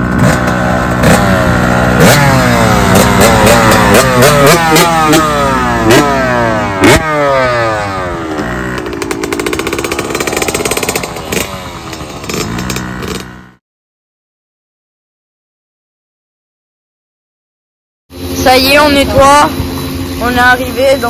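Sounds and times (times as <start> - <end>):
dirt bike engine revving: 0.0 - 13.6, 18.1 - 21.0.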